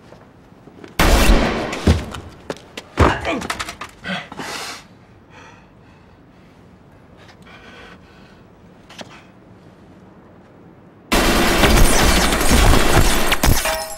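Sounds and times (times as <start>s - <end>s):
heavy thuds: 1.5s - 3.6s.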